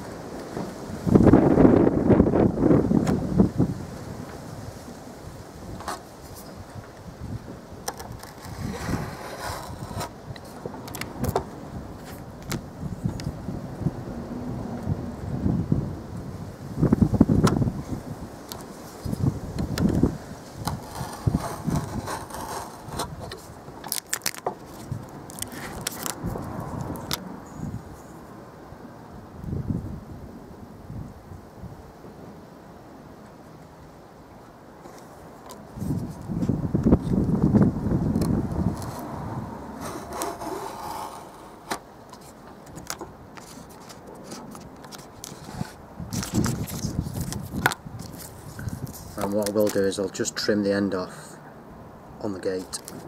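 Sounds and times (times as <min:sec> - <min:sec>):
utility knife cutting tape: 0:07.9 - 0:10.2, 0:20.6 - 0:26.2, 0:39.8 - 0:41.8
rustling: 0:07.9 - 0:11.4, 0:17.8 - 0:27.2, 0:34.8 - 0:49.8.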